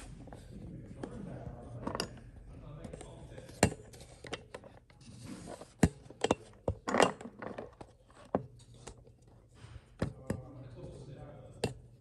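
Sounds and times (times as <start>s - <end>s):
tools knocking and clicking: 1.8s - 4.8s, 5.8s - 9.1s.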